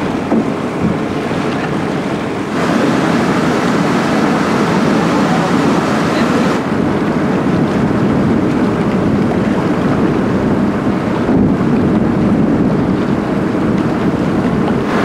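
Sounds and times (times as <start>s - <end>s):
water rushing along ship hull: 0.0s - 15.0s
wind buffeting microphone: 0.0s - 15.0s.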